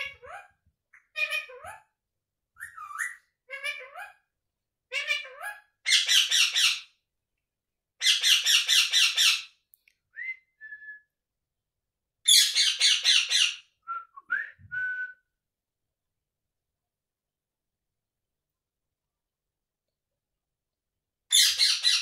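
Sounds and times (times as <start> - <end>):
parakeet calling: 4.9 - 7.0, 8.0 - 9.6, 12.2 - 13.7, 21.3 - 22.0.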